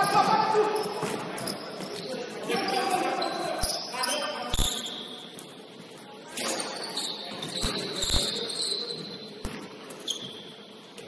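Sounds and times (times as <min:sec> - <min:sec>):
thin high squeak: 0:06.4 - 0:09.4, 0:10.0 - 0:10.7.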